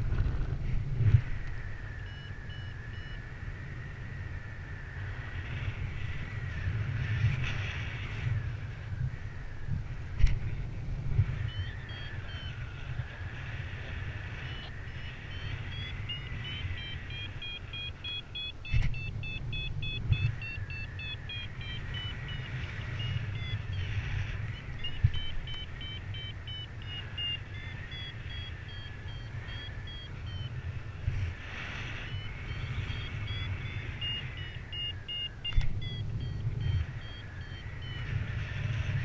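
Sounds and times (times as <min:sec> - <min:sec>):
wind rumble on microphone: 0:00.0 - 0:39.0
variometer beeping: 0:01.4 - 0:03.2, 0:11.4 - 0:12.6, 0:14.3 - 0:30.8, 0:32.0 - 0:39.0.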